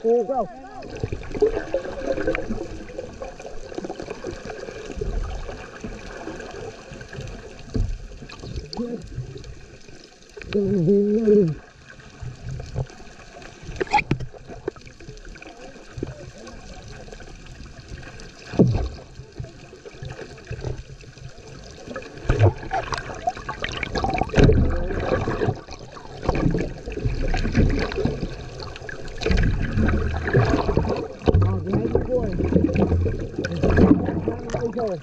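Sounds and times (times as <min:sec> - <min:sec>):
muffled underwater sloshing: 0:00.0 - 0:35.0
thumps and splashes: 0:13.7 - 0:14.9, 0:18.4 - 0:21.0, 0:21.8 - 0:35.0.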